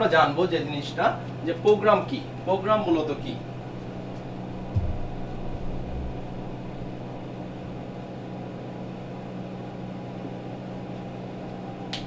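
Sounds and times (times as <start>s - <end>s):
low electrical hum: 0.0s - 12.0s
room noise: 3.4s - 8.0s
soft low thumps: 4.2s - 7.3s.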